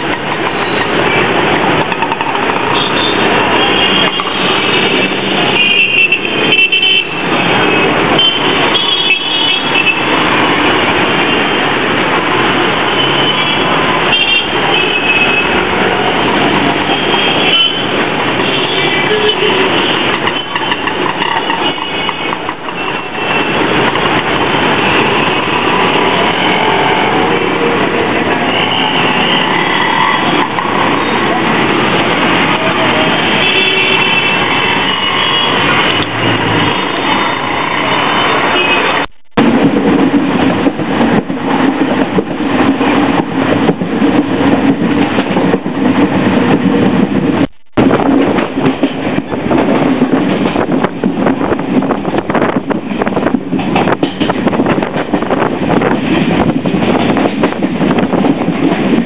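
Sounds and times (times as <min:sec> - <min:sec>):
auto-rickshaw engines: 0:00.0 - 0:45.5
street traffic running past: 0:00.0 - 0:59.0
bus passing: 0:09.6 - 0:21.7, 0:22.3 - 0:59.0.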